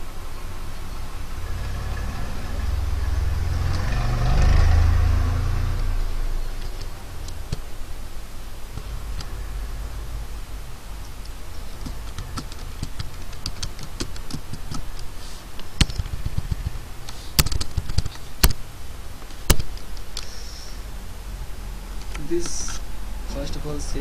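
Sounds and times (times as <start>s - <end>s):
keyboard typing clicks: 11.0s - 16.8s.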